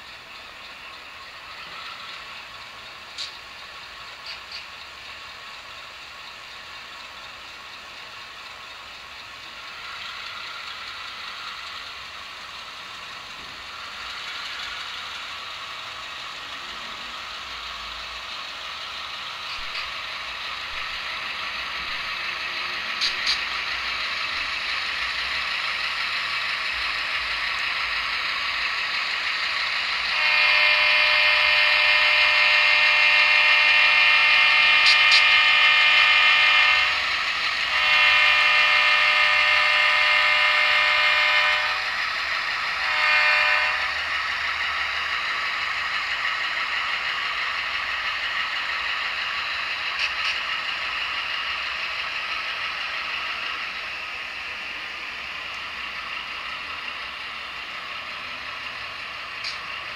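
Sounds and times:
sampled diesel engine sound: 0.0 - 59.9
model train horn blasts: 29.8 - 44.6.

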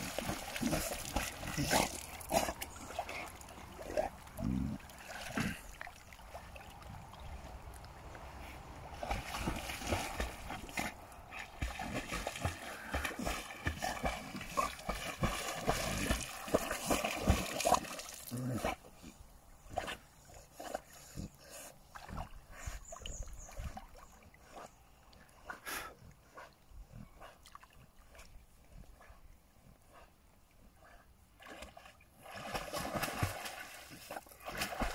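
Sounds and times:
dog splashing in water: 0.0 - 7.1, 9.0 - 18.4, 31.4 - 34.9.

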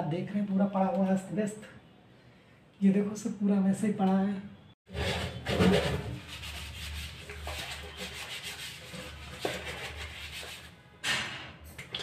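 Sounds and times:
scratchy rubbing of plastic jar: 4.9 - 10.8.

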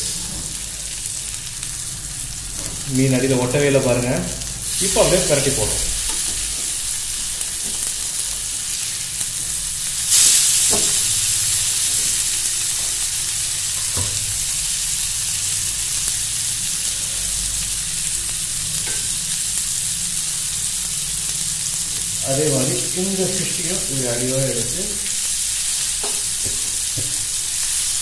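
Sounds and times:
fish frying in hot oil: 0.0 - 28.0.

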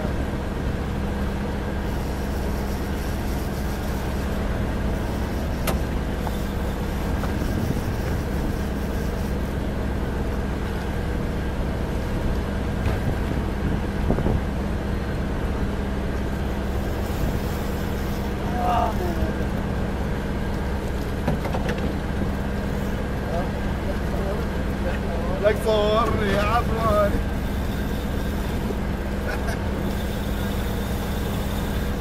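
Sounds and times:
boat engine running: 0.0 - 32.0.

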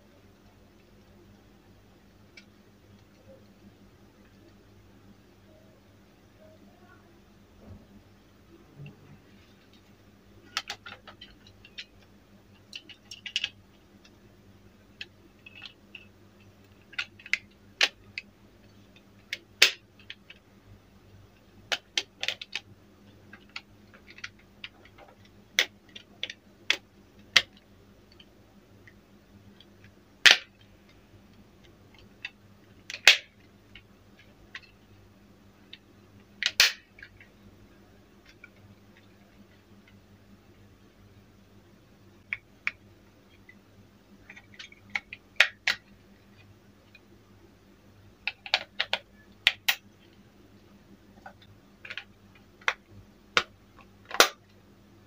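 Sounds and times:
plastic clips snapping: 30.2 - 30.5, 36.4 - 37.1, 54.1 - 54.4.

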